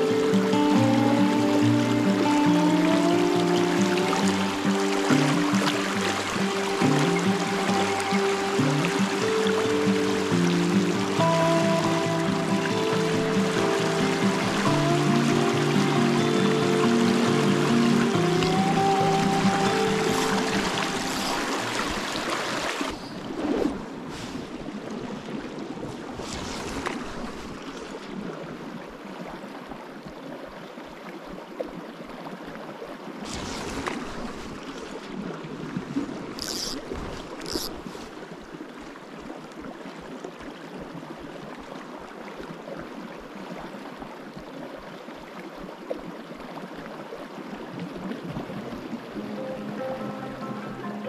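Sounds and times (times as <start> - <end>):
river rushing over rocks: 0.0 - 24.1.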